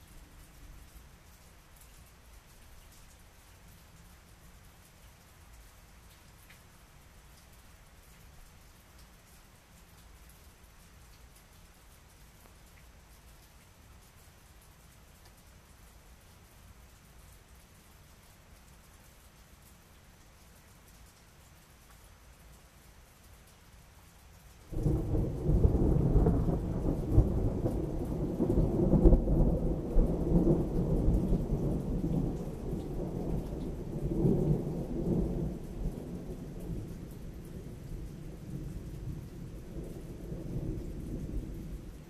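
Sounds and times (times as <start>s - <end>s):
thunder rumbling: 24.7s - 42.0s.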